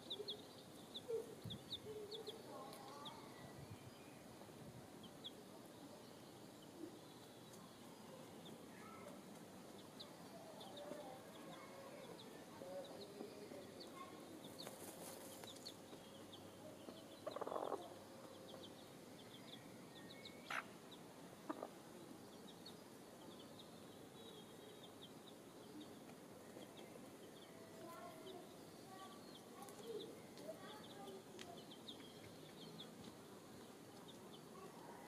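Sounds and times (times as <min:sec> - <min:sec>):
small birds chirping: 0:00.0 - 0:35.0
hen shaking feathers in dirt: 0:14.5 - 0:15.8.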